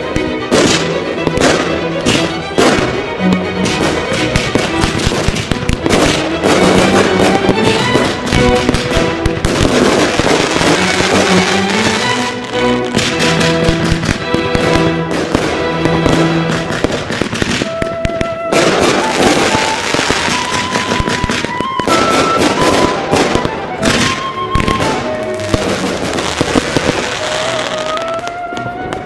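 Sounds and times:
background music with held notes: 0.0 - 29.0
fireworks crackling and banging: 0.0 - 29.0.

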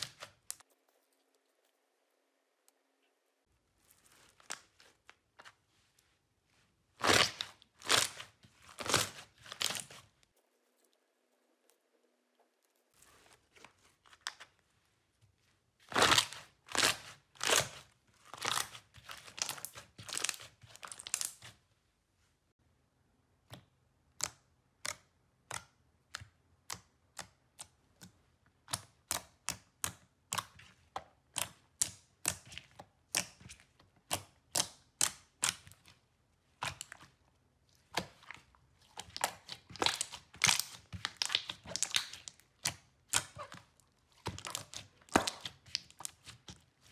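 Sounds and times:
slime clicking and popping: 39.0 - 43.5.

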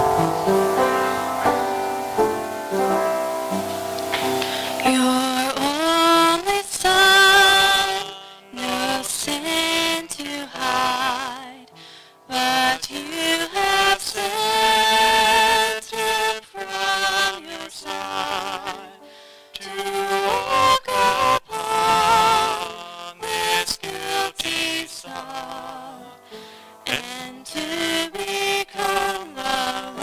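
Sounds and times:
piano accompaniment: 0.0 - 10.0
man singing a hymn: 4.8 - 11.6, 12.3 - 19.0, 19.6 - 26.1, 26.9 - 30.0.

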